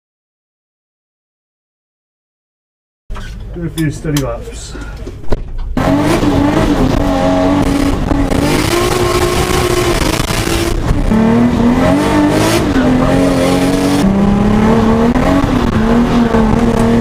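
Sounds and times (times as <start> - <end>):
car engine accelerating: 5.6 - 17.0.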